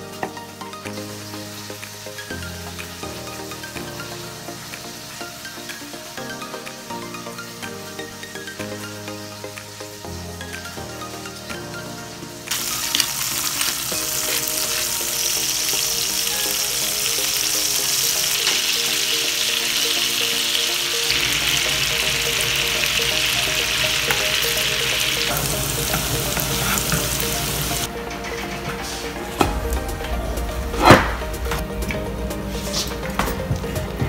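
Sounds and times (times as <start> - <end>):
butter sizzling in a frying pan: 12.4 - 27.9.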